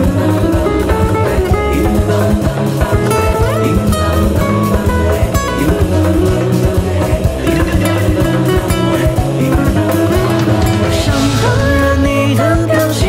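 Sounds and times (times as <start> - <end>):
instrumental pop-rock band music: 0.0 - 13.0.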